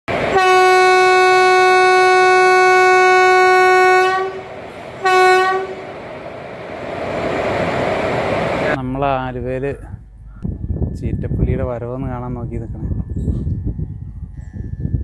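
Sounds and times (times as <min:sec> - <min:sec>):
locomotive horn blasts: 0:00.2 - 0:05.9.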